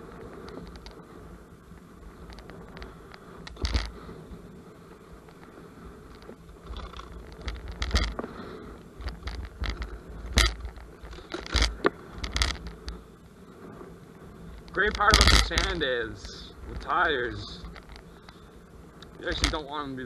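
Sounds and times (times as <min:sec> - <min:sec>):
wind rumble on microphone: 0:00.0 - 0:20.0
scooter knocking and rattling: 0:03.5 - 0:03.9, 0:06.1 - 0:08.3, 0:09.0 - 0:12.7, 0:14.6 - 0:15.8, 0:19.2 - 0:19.6.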